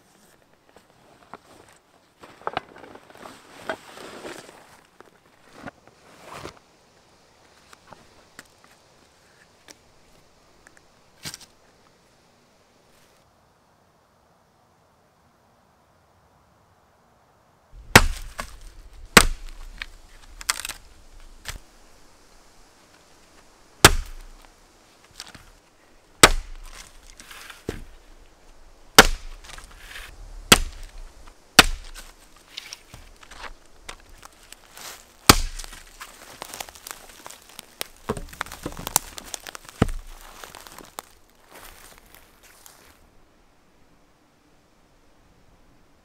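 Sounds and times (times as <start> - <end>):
axe chopping wood: 17.8 - 20.8, 23.8 - 24.4, 26.2 - 27.0, 27.6 - 28.0, 29.0 - 31.0, 31.6 - 32.1, 35.2 - 36.0, 38.0 - 40.2
wood splintering cracks: 17.9 - 21.6, 23.8 - 24.4, 26.2 - 27.8, 29.0 - 29.7, 30.5 - 31.0, 31.6 - 34.2, 35.3 - 41.1.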